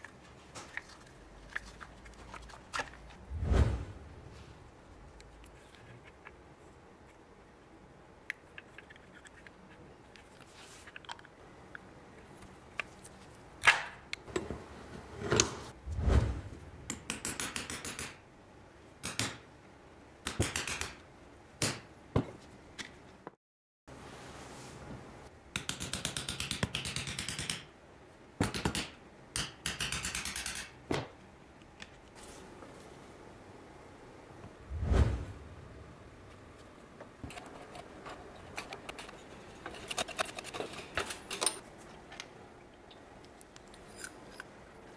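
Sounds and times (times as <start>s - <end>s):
tools scraping metal: 37.2s - 41.7s, 43.6s - 44.5s.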